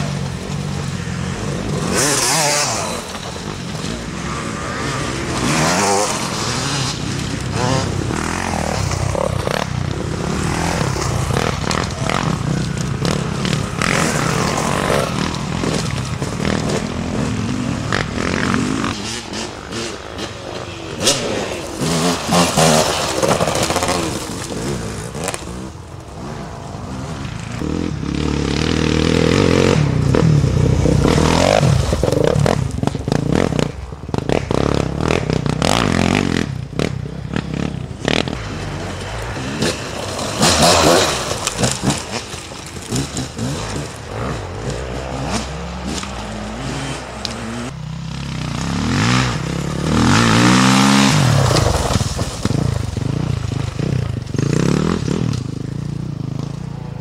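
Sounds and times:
dirt bike engines revving: 0:00.0 - 0:57.0
stones clattering under tyres: 0:38.1 - 0:46.2, 0:50.4 - 0:55.5.

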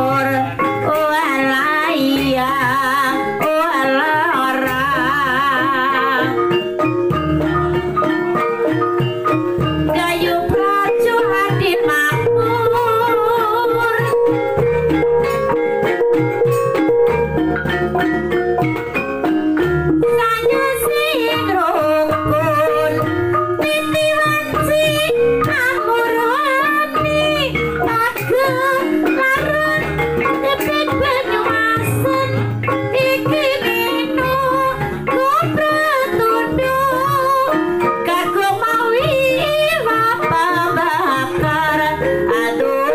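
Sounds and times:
person singing: 0:00.0 - 0:06.5
drum: 0:00.0 - 0:42.9
gamelan ensemble playing: 0:00.0 - 0:42.9.

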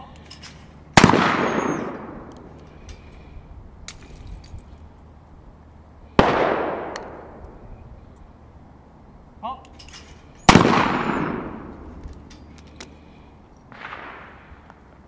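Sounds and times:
gunshots: 0:01.0 - 0:02.3, 0:06.2 - 0:07.3, 0:10.5 - 0:11.7, 0:13.7 - 0:14.6.

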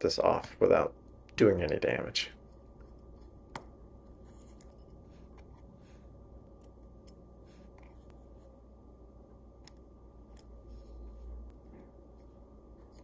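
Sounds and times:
faint steady hum: 0:00.0 - 0:13.0
tweezers clicking and scratching: 0:02.4 - 0:05.6, 0:12.8 - 0:13.0.

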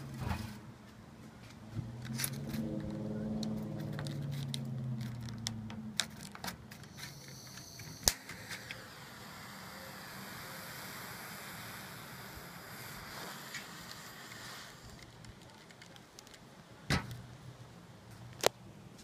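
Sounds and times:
vehicle engine humming: 0:00.0 - 0:19.0
gas flame hissing: 0:06.6 - 0:16.2
torch lighter igniter click: 0:06.8 - 0:16.3.

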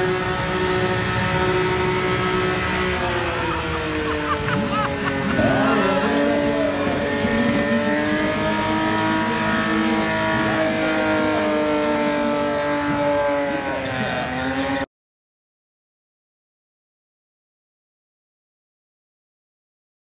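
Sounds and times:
car engine at high revs: 0:00.0 - 0:14.9.

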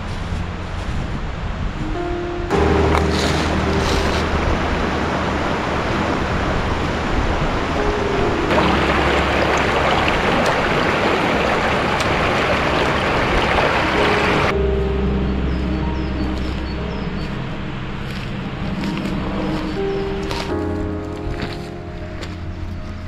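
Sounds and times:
rushing stream water: 0:02.5 - 0:14.6.

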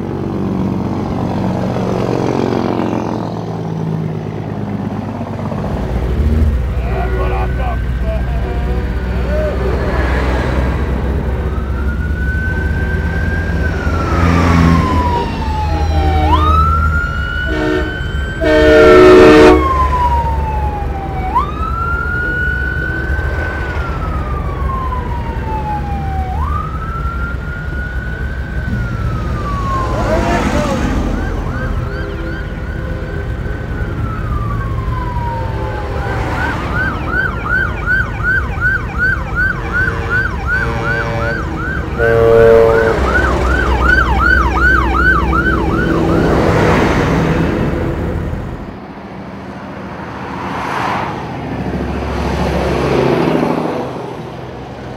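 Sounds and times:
diesel truck engines rumbling: 0:00.0 - 0:54.9
police siren wailing: 0:05.5 - 0:48.9
horn blast: 0:15.6 - 0:16.8, 0:17.4 - 0:19.8, 0:39.7 - 0:43.6.

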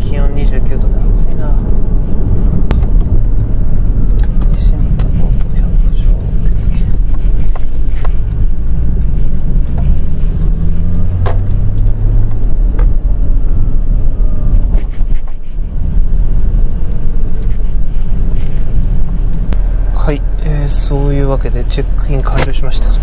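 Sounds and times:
car engine drone: 0:00.0 - 0:23.0
road rumble: 0:00.0 - 0:23.0.

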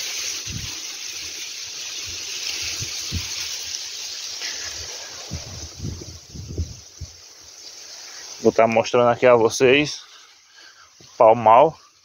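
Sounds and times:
wind on microphone: 0:00.4 - 0:00.7, 0:02.6 - 0:03.4, 0:04.7 - 0:07.2
wind buffeting thumps: 0:00.5 - 0:00.7, 0:02.1 - 0:03.4, 0:05.1 - 0:07.3.

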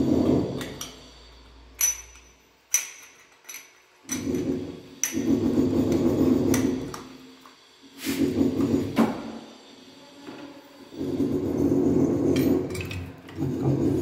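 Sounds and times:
metallic clinks and taps: 0:01.8 - 0:04.4.

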